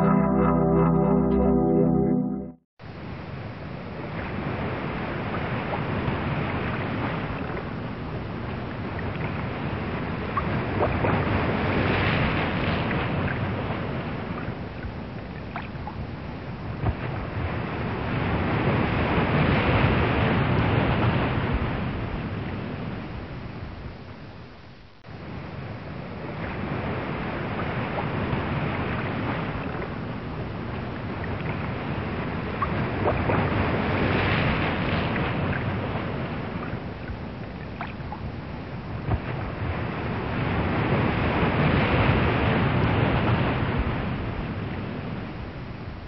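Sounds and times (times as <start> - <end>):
ocean waves washing: 0.0 - 3.2.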